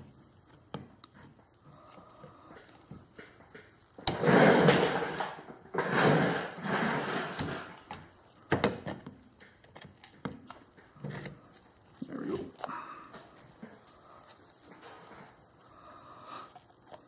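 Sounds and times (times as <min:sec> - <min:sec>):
metal gears scraping and rattling: 0:04.0 - 0:07.9.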